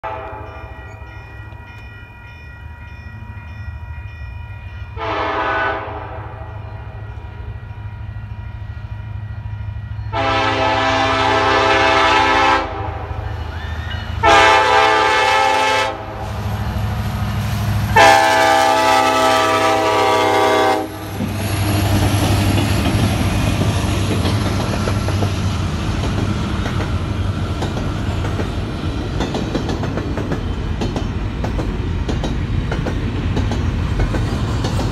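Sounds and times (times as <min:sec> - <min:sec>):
train air horn blasts: 0:00.0 - 0:01.1, 0:05.0 - 0:07.0, 0:10.1 - 0:16.5, 0:17.9 - 0:21.2
crossing bell ringing: 0:00.0 - 0:10.6
train wheels over crossing: 0:00.1 - 0:34.9
locomotive rumble: 0:05.0 - 0:34.9.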